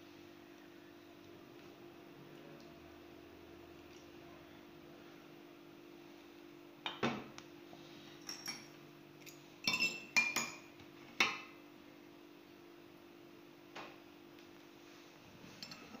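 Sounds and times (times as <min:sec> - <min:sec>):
porcelain cups clinking: 0:08.2 - 0:11.4.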